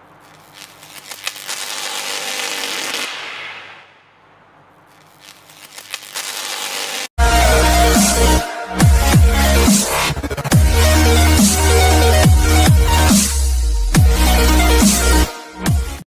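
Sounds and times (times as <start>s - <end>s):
static crackle swells: 0.0s - 7.1s
electronic dubstep music: 7.2s - 16.0s.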